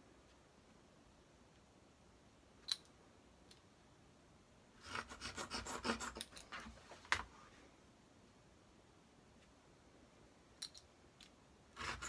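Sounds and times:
marker pen scratching: 4.8s - 6.7s, 11.8s - 12.0s.

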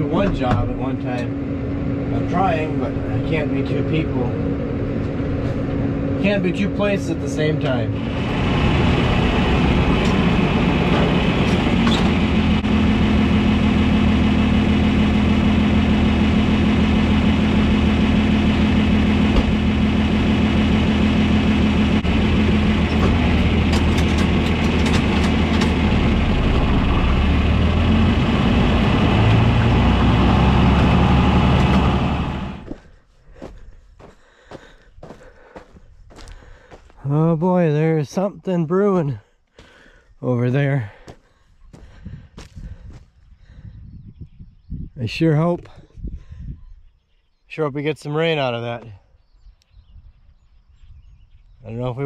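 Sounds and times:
tractor engine running: 0.0s - 37.2s.

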